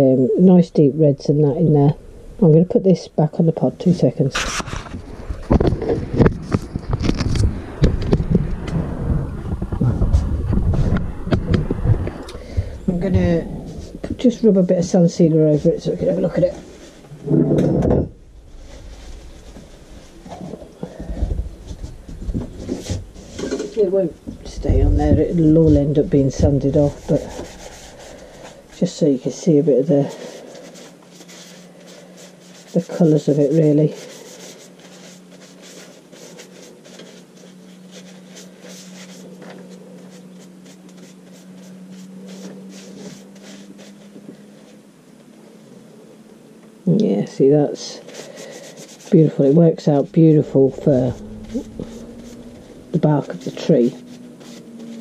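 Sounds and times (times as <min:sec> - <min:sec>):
steady low hum: 0:00.0 - 0:55.0
rubbing on wood: 0:18.5 - 0:44.8, 0:47.8 - 0:55.0.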